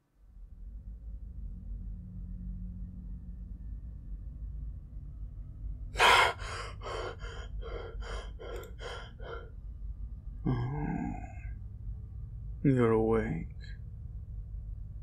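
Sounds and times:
person gasping and panting: 0:06.0 - 0:09.5.

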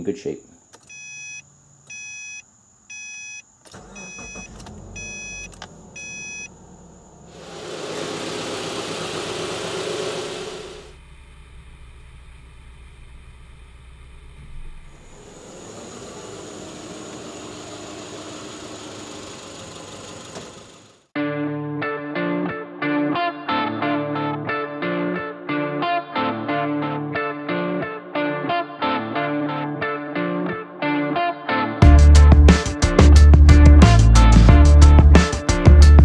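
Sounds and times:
car warning chime beeping: 0:00.9 - 0:07.3
car engine starting and idling: 0:03.6 - 0:21.1.

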